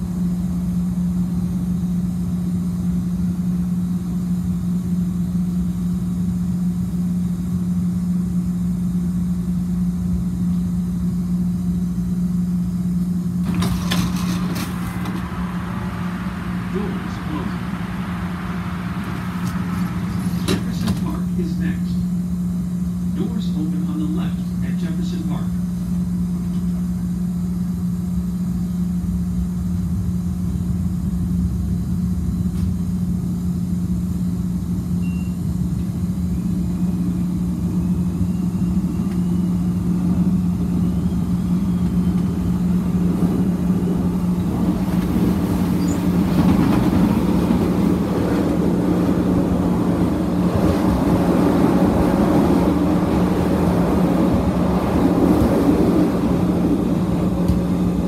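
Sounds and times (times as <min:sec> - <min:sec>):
train car low hum: 0:00.0 - 0:58.0
train motor whine: 0:09.4 - 0:27.9, 0:28.8 - 0:58.0
wheels rumbling on rail: 0:09.5 - 0:24.6, 0:35.6 - 0:58.0.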